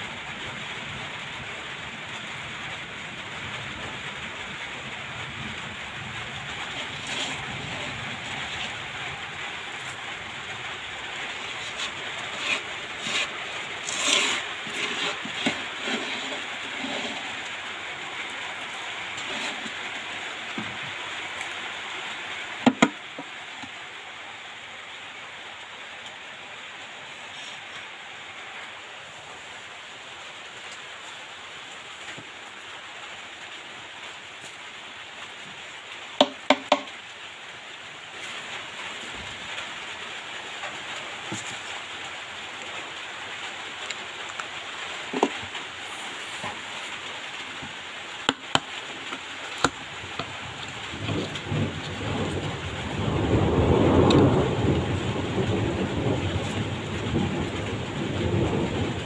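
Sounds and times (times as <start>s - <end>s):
steady hiss: 0.0s - 59.0s
debris rustling: 6.2s - 21.4s.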